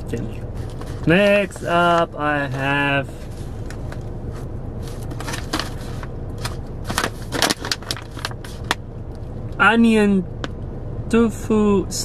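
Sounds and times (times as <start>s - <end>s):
low steady hum: 0.0s - 12.0s
plastic bag crinkling: 4.9s - 8.7s.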